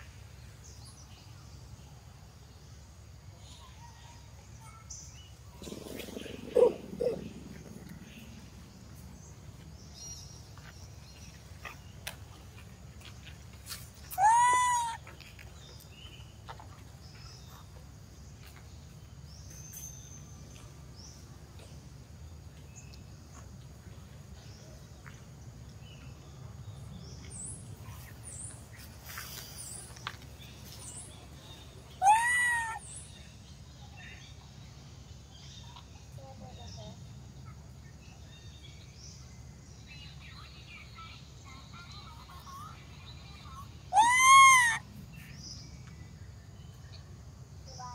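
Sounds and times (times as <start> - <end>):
monkey crying: 14.2 - 15.0, 32.0 - 32.8, 43.9 - 44.8.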